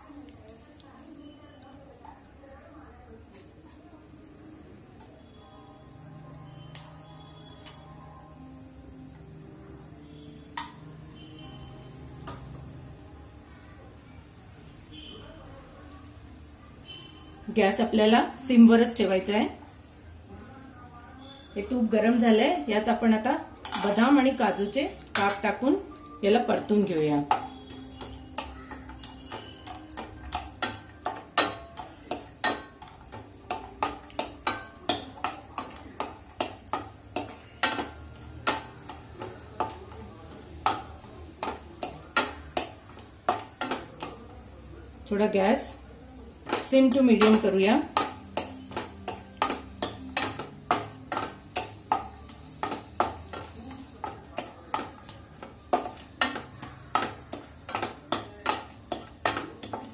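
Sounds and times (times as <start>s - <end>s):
nuts frying in ghee: 0.0s - 59.9s
wooden spatula knocking on pan: 26.5s - 44.3s, 46.4s - 59.9s.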